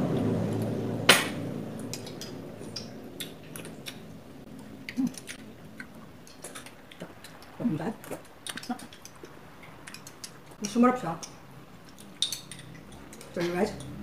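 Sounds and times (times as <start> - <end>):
spoons clinking in glass cups: 12.0 - 13.9.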